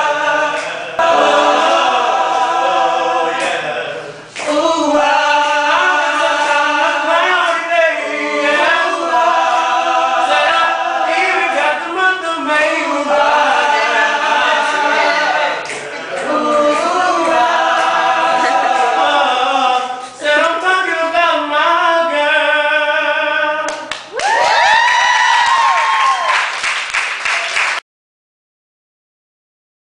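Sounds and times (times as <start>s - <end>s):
mixed voices singing a cappella: 0.0s - 23.9s.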